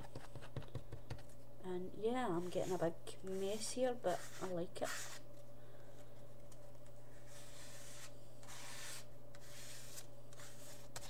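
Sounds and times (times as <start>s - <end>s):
plastic card scraping paint on paper: 2.4s - 5.2s, 7.3s - 11.0s.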